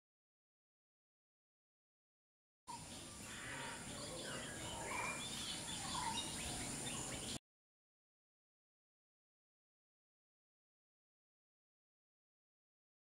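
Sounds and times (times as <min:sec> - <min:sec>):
steady high hiss: 0:02.7 - 0:07.4
wild birds chirping: 0:02.7 - 0:07.4.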